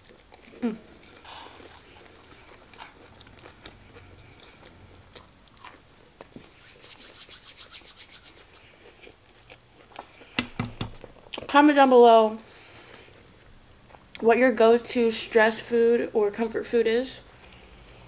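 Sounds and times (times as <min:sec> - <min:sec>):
biting and chewing: 0:00.0 - 0:06.4, 0:08.6 - 0:10.4.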